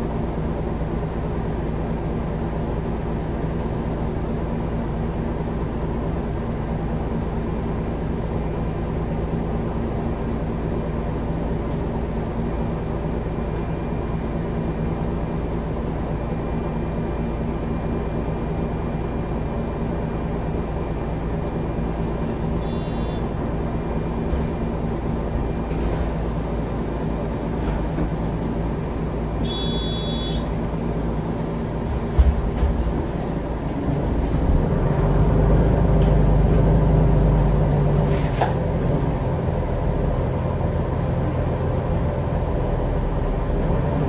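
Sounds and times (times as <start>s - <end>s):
bus diesel engine idling: 0.0s - 44.0s
short electronic beep: 22.7s - 23.2s, 29.4s - 30.5s.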